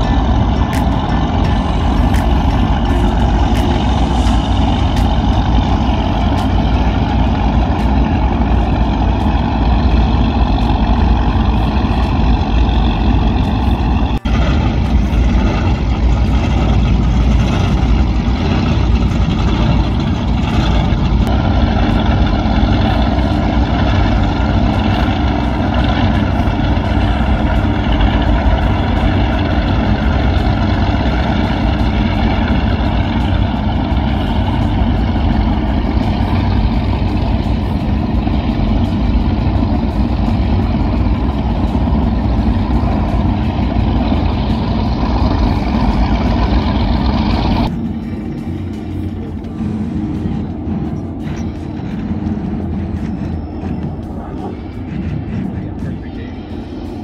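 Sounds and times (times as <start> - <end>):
powerboat engines rumbling: 0.0 - 57.0.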